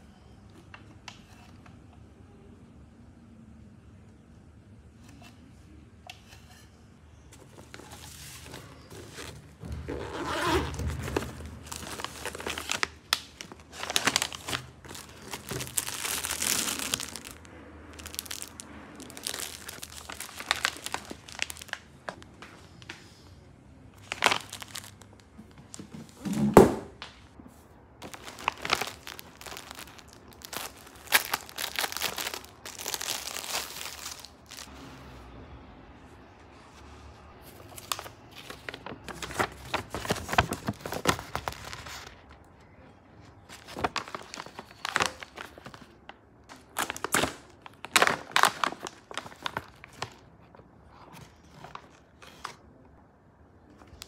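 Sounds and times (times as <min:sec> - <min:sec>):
plastic packaging crinkling: 0:07.4 - 0:23.0, 0:24.0 - 0:26.2, 0:28.0 - 0:34.7, 0:37.5 - 0:42.4, 0:43.4 - 0:50.5.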